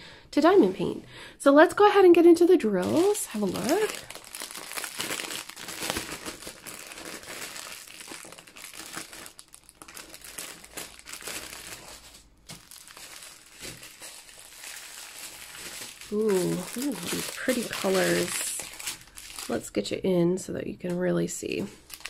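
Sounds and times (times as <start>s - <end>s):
plastic packaging crinkling: 2.8s - 19.8s, 21.8s - 22.0s.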